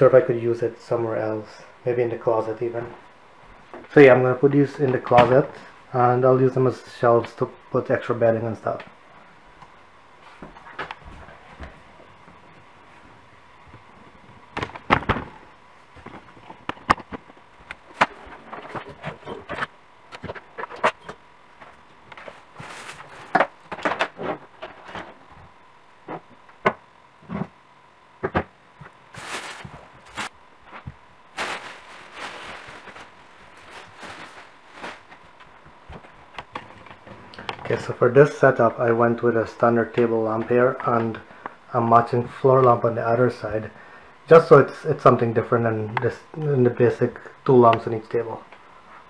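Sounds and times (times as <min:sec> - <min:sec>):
rustling: 0:22.1 - 0:25.2, 0:29.1 - 0:36.2.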